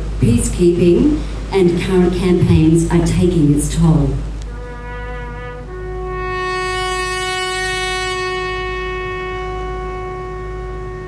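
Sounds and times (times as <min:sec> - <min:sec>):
brass instrument playing solemn call: 0:04.4 - 0:11.0.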